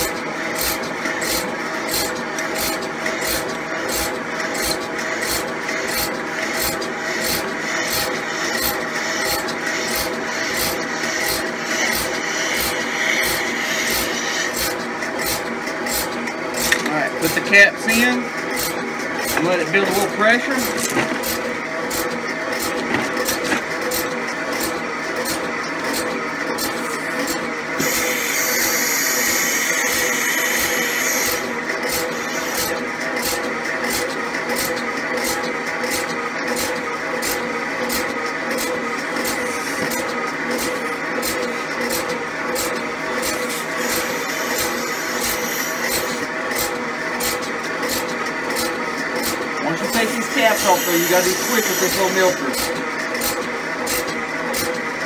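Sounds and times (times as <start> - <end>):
milking machine vacuum pump pulsing: 0.0 - 55.0
pulsing hiss: 27.8 - 31.4, 50.0 - 52.4.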